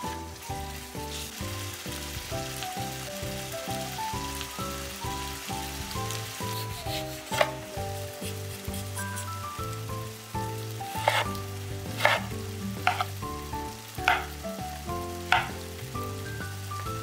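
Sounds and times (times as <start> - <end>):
background music: 0.0 - 17.0
knife cutting on wooden board: 6.4 - 7.6, 11.0 - 11.4, 12.0 - 12.3, 12.9 - 13.1, 14.0 - 14.3, 15.3 - 15.5.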